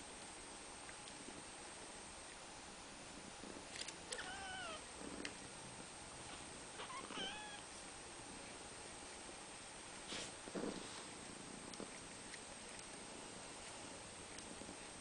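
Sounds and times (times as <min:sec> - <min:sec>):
kittens mewing: 0:04.1 - 0:04.9, 0:06.8 - 0:07.7.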